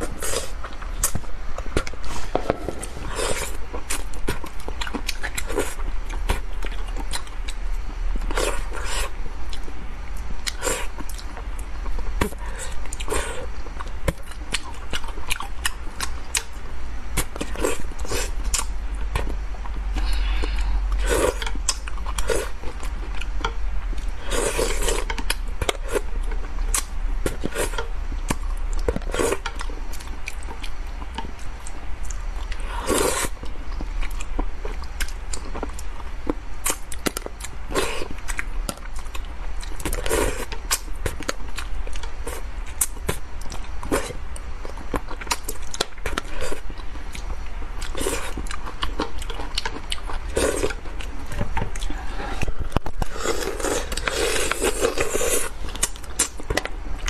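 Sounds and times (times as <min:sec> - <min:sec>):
wet chewing and lip-smacking: 0:28.2 - 0:57.0.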